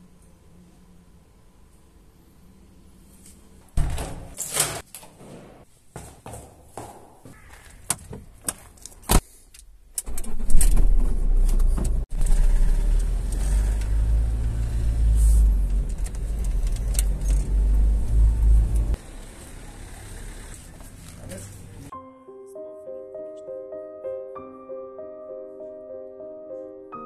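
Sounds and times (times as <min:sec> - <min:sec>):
quiet street sound: 0:00.0 - 0:03.8, 0:05.5 - 0:23.6
footsteps on concrete stairs: 0:05.1 - 0:08.9
car engine rumble from inside: 0:10.9 - 0:21.9.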